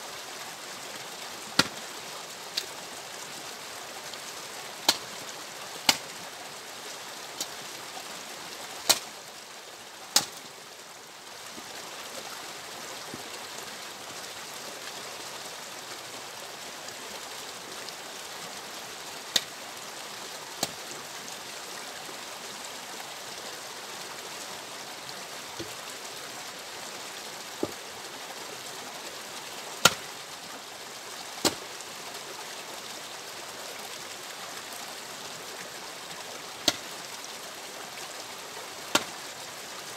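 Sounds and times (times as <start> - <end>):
axe splitting logs: 1.6 - 1.8, 8.9 - 9.1, 10.2 - 10.4, 29.8 - 30.1, 36.6 - 36.8, 38.9 - 39.2.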